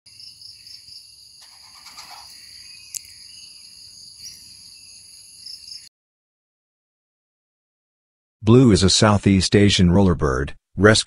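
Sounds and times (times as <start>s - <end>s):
high-pitched insect chorus: 0.1s - 5.9s.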